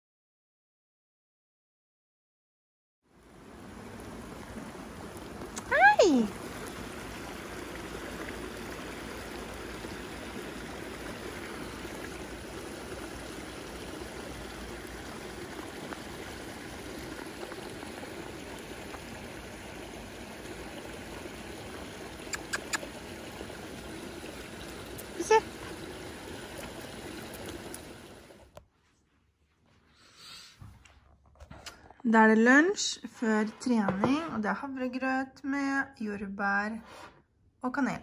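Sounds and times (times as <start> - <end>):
stream running over rocks: 3.2 - 28.5.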